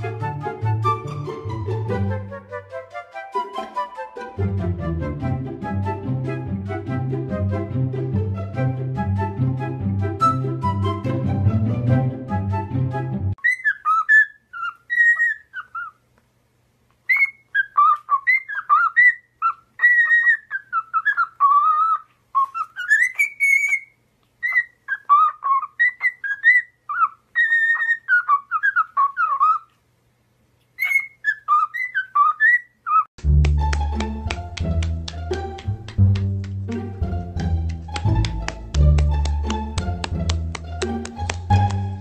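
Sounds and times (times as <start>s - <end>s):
parrot whistling: 13.4s - 16.0s, 17.1s - 29.7s, 30.8s - 33.1s.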